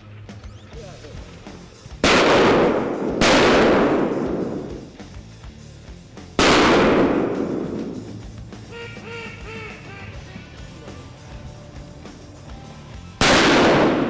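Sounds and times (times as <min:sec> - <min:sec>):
shotgun shots echoing: 0:02.0 - 0:04.9, 0:06.4 - 0:08.1, 0:13.2 - 0:14.0.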